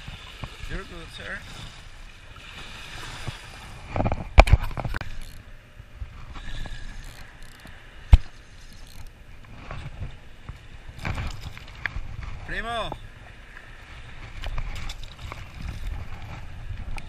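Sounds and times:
spinning reel cranking: 5.0 - 5.4, 6.5 - 7.7, 8.6 - 9.1.

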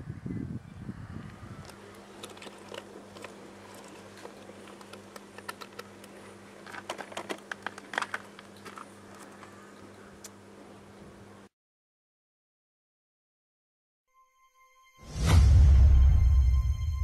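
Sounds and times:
animal chewing with crunches: 1.6 - 9.6
low hum: 15.0 - 17.0.

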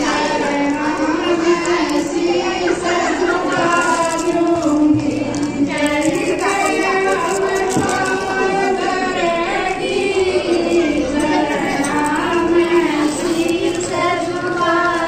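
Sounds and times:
women singing devotional song: 0.0 - 15.0.

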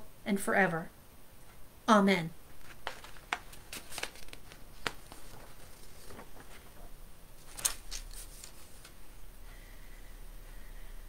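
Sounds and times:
papers rustling on a desk: 2.5 - 9.0.

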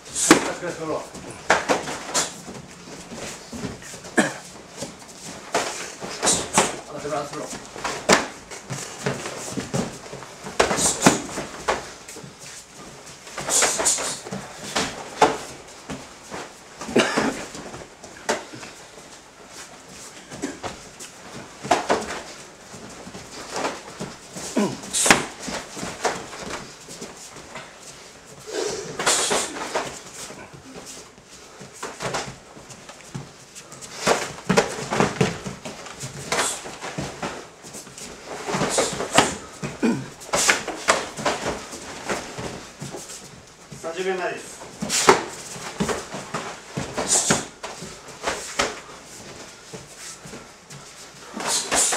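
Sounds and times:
feet on mat: 0.0 - 51.9
punches and kicks landing: 7.7 - 11.9, 38.5 - 42.9
fighters grunting: 24.4 - 25.4, 28.5 - 29.7, 38.7 - 40.6.

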